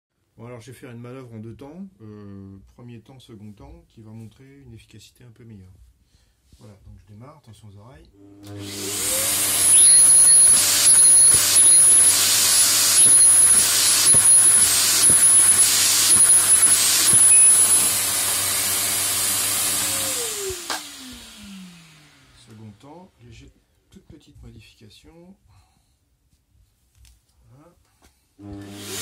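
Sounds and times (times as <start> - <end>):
vacuum cleaner motor running: 8.2 - 22.6, 28.4 - 29.0.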